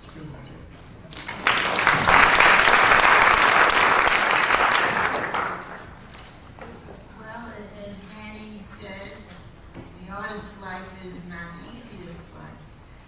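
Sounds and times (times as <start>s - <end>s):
audience applauding: 1.1s - 5.9s.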